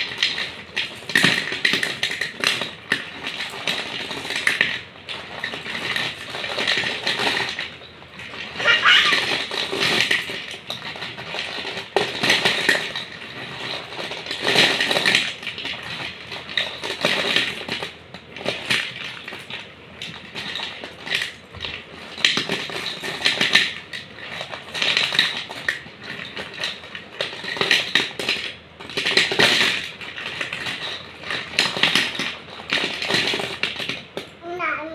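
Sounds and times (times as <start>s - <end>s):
snack sticks clattering on steel plate: 0.0s - 34.2s.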